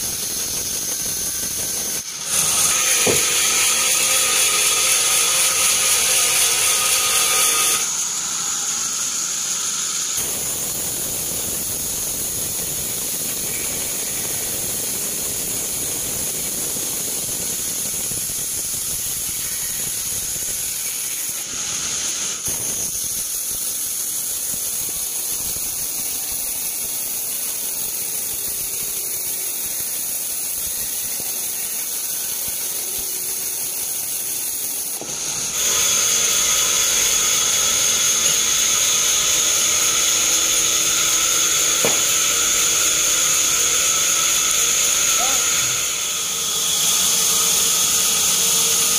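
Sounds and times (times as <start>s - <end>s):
band saw blade squealing: 13.2s - 14.8s, 39.7s - 48.2s.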